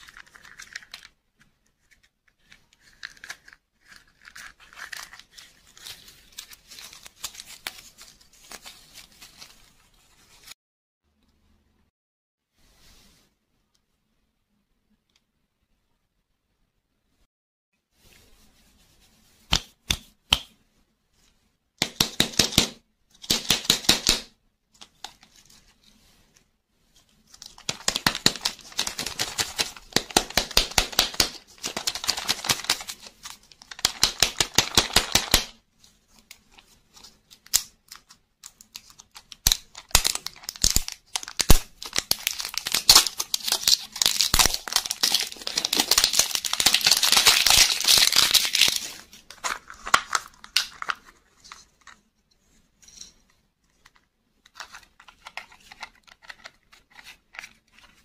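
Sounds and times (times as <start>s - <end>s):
plastic wrapper crinkling and tearing: 0.0s - 1.2s, 1.8s - 9.8s, 27.3s - 35.5s, 36.2s - 52.0s.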